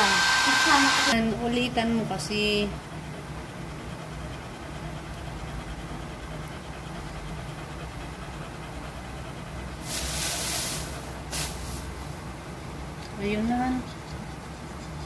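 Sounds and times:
dog panting: 3.0 - 9.8, 13.3 - 15.0.

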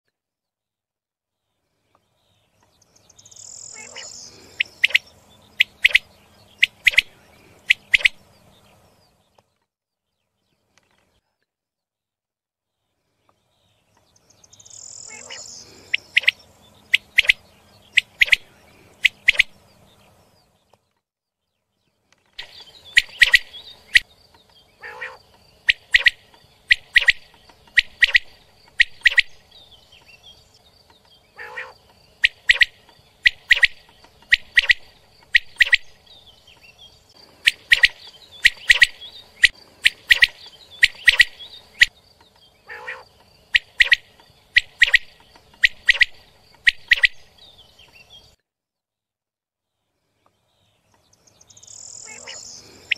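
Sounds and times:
quail calling: 3.6 - 8.3, 15.0 - 19.6, 22.4 - 24.0, 24.8 - 29.6, 31.3 - 36.4, 37.2 - 41.9, 42.6 - 47.4, 51.9 - 52.9.

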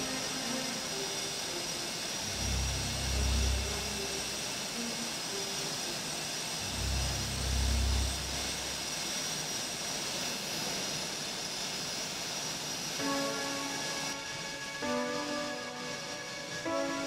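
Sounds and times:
jet engines whining: 0.0 - 17.0
deep engine rumble: 2.2 - 4.4, 6.6 - 9.0.

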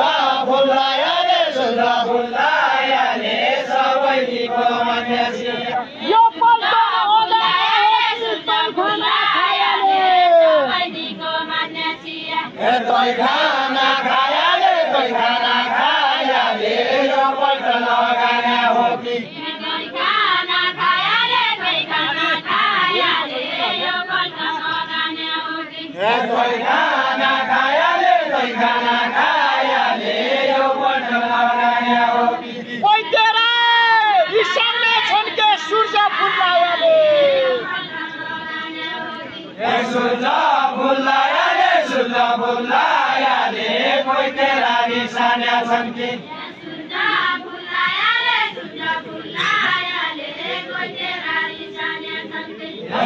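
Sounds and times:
women singing in unison: 0.0 - 33.3, 33.9 - 53.0.

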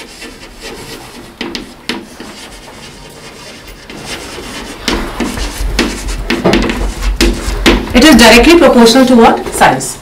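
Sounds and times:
chalk scratching on chalkboard: 0.0 - 8.2
chalk tapping: 0.0 - 8.6.

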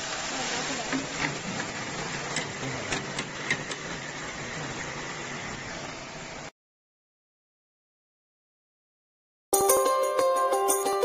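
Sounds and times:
deep fryer oil sizzling: 0.0 - 6.5.

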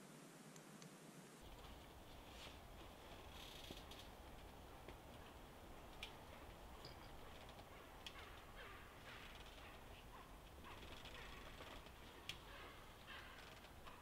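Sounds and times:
faint birds chirping: 1.4 - 14.0.

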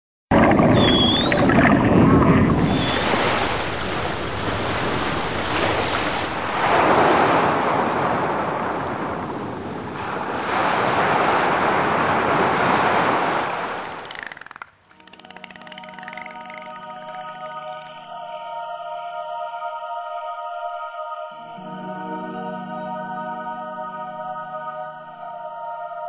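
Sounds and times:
ocean waves washing in: 0.3 - 14.3.

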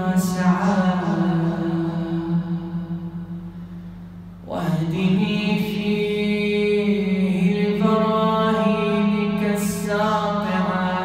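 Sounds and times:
man chanting: 0.0 - 3.0, 4.5 - 11.0.

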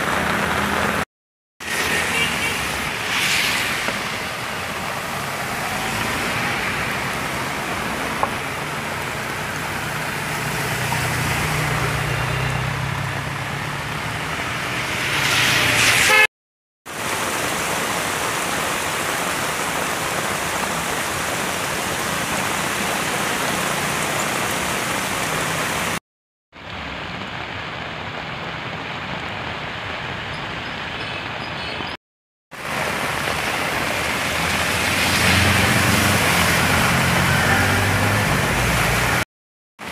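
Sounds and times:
heavy rain: 0.0 - 16.3, 16.9 - 31.9, 32.5 - 39.9
running floodwater: 0.0 - 16.3, 16.9 - 26.0, 26.6 - 39.9
tyres spraying through water: 0.0 - 16.3, 16.9 - 26.0, 32.5 - 39.9
car engine passing: 2.6 - 8.2, 9.8 - 16.1, 34.1 - 39.2.

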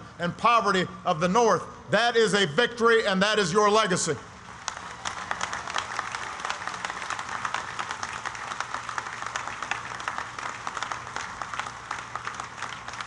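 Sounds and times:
crowd applauding: 4.5 - 13.0.

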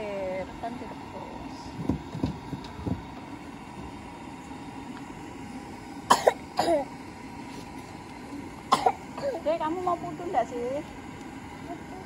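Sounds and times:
person coughing: 6.1 - 6.9, 8.7 - 9.4.

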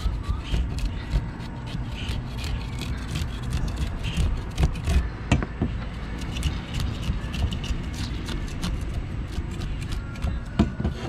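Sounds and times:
knife scraping fish scales: 0.0 - 5.0.

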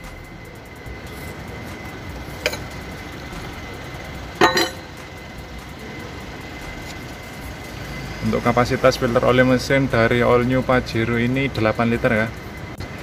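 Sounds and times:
metallic clink and clatter: 2.3 - 3.0, 4.4 - 5.0.

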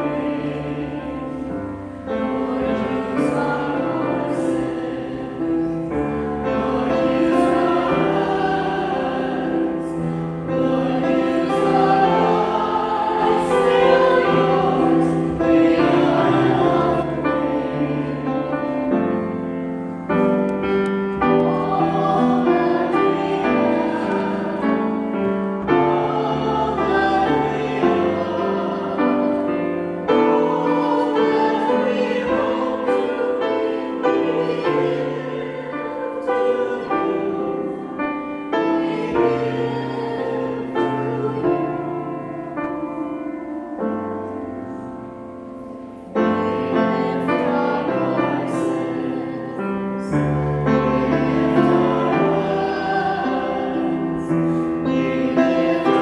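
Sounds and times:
voices singing: 0.0 - 45.2, 46.0 - 56.0
grand piano playing: 0.0 - 56.0.

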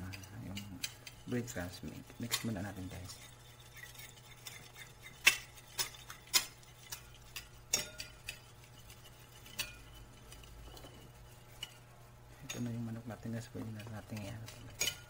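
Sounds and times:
spoon clinking against glass bowl: 0.0 - 11.8.

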